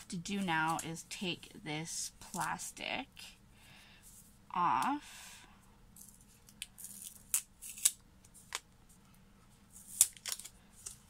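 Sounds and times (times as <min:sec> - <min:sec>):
plastic wrapping crinkling: 0:09.8 - 0:11.0.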